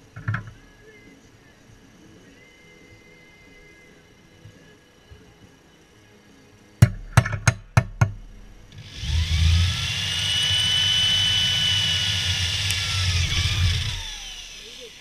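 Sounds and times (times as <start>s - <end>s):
power tool whining: 8.7s - 15.0s.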